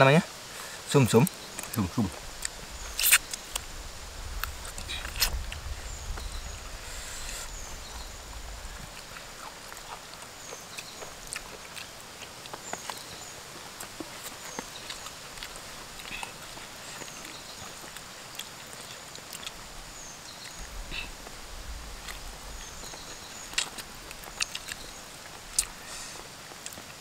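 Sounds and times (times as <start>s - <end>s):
sucking at bones: 2.4s - 3.5s
lip smacks: 2.4s - 3.7s, 25.5s - 25.8s
chewing: 8.7s - 21.4s, 22.0s - 27.0s.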